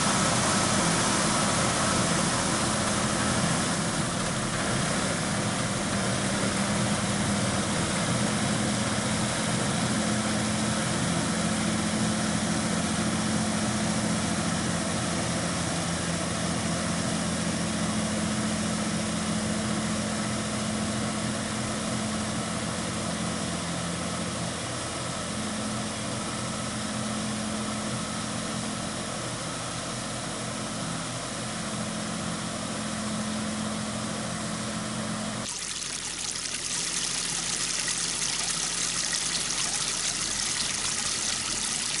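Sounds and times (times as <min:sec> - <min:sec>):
water pouring and splashing: 0:35.4 - 0:42.0.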